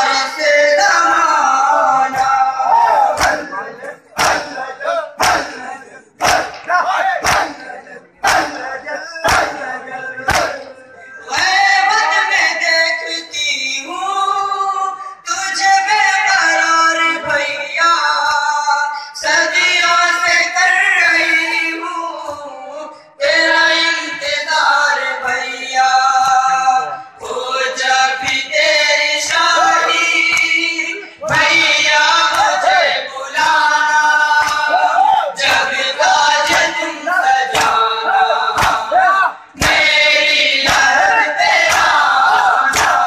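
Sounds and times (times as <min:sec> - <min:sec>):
men chanting a lament: 0:00.0 - 0:43.0
hands beating on chests: 0:03.1 - 0:03.5, 0:04.2 - 0:04.6, 0:05.2 - 0:05.6, 0:06.2 - 0:07.6, 0:08.2 - 0:08.6, 0:09.2 - 0:09.7, 0:10.3 - 0:10.7, 0:38.5 - 0:39.0, 0:42.6 - 0:43.0.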